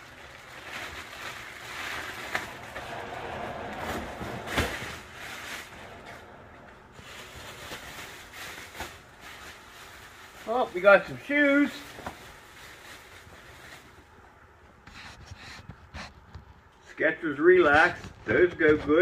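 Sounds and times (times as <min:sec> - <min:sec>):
plastic garbage bags rustling: 0:00.0 - 0:14.4.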